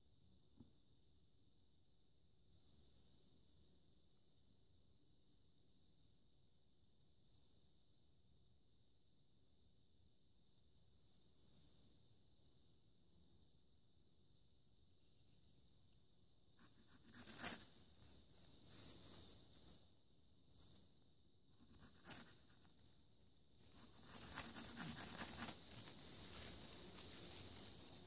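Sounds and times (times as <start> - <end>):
knife shaving wood: 23.8 - 28.0.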